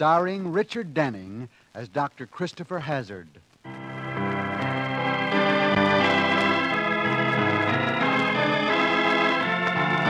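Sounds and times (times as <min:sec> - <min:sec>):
organ playing held chords: 0:03.7 - 0:10.0.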